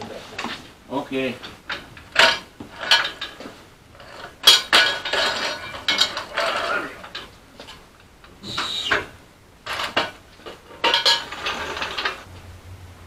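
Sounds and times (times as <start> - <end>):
floor jack metal clanking: 1.4 - 7.8, 9.7 - 12.3.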